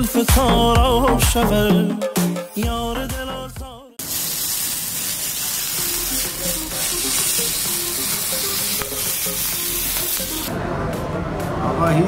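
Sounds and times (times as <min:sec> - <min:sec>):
hot fat sizzling on meat: 0:04.0 - 0:10.5.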